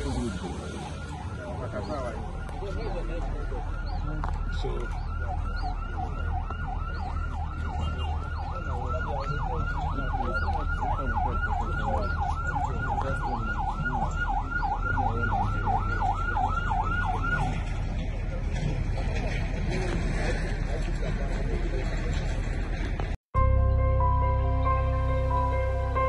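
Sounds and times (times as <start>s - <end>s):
emergency siren yelping: 0.0s - 17.9s.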